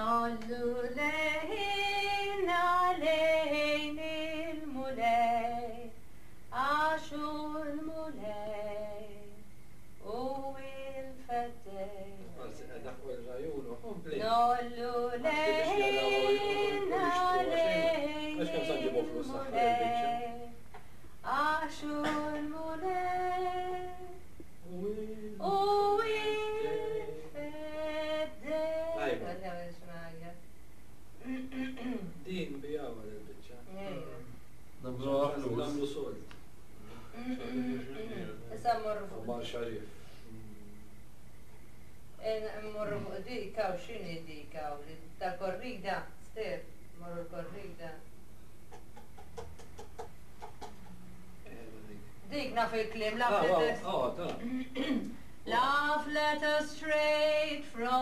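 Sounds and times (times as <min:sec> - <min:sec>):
woman singing unaccompanied: 0:00.0 - 0:12.4, 0:14.2 - 0:20.6, 0:21.2 - 0:30.4, 0:54.4 - 0:58.0.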